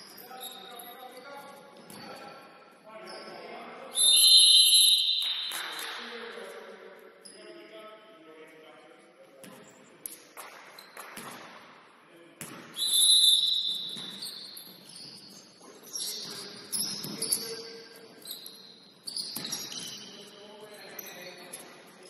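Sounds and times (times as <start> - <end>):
shoes squeaking on gym floor: 0.0 - 2.4, 12.7 - 22.0
ball bouncing: 9.4 - 11.6, 12.4 - 12.8, 13.7 - 15.4, 19.1 - 20.0.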